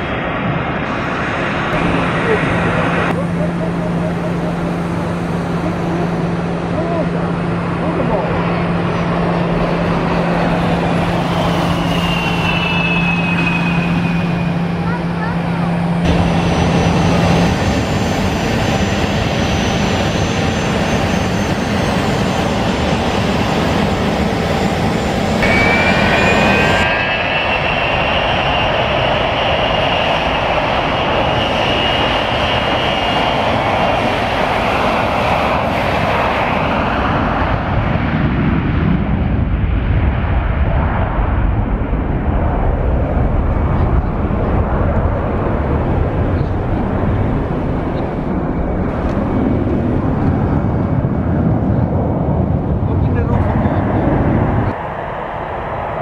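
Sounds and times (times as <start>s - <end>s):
jet engine whine: 0.0s - 56.0s
jet engines rumbling on takeoff: 0.0s - 56.0s.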